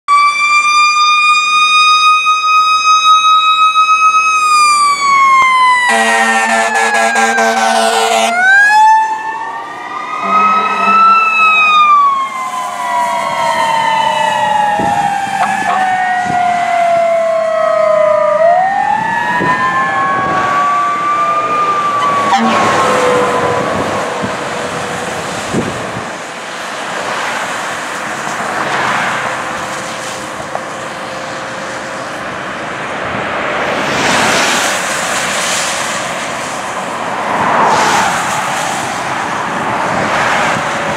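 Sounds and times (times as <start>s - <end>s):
electronic siren wailing: 0.1s - 25.2s
passing traffic road noise: 0.1s - 40.9s.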